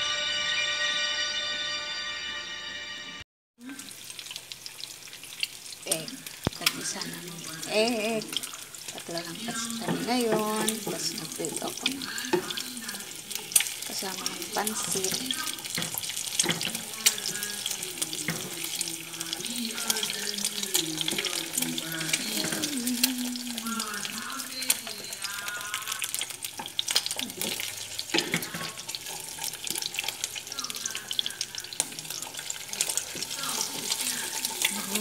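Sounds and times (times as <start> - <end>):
eggs frying in oil: 3.6 - 35.0.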